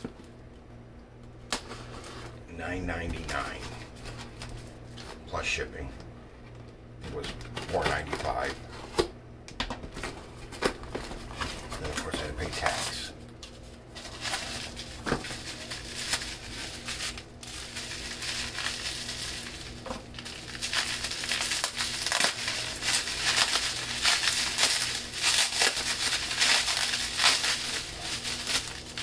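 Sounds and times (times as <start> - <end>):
plastic wrapping crinkling: 10.0 - 29.0.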